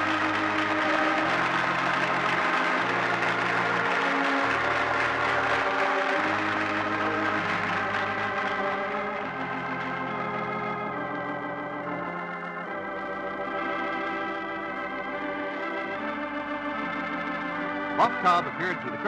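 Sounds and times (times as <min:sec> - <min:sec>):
organ playing sustained chords: 0:00.0 - 0:19.0.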